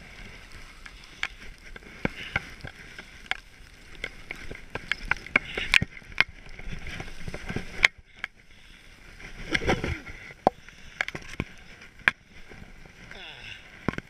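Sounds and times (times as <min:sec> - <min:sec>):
skis hissing over snow: 0:00.0 - 0:05.8.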